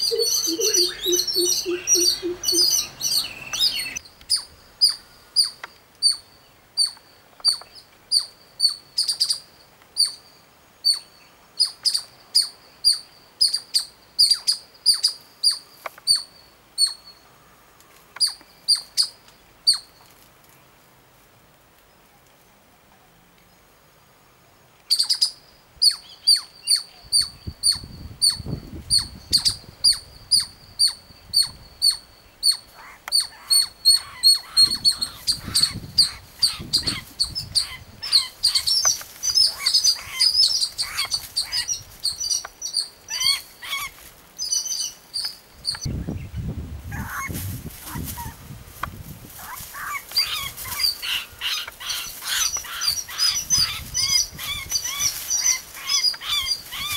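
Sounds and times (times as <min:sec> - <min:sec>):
shrill bird distress calls: 0:00.0 - 0:06.2, 0:24.9 - 0:45.9, 0:49.4 - 0:56.9
dry leaves rustling: 0:32.8 - 0:45.0, 0:46.8 - 0:56.9.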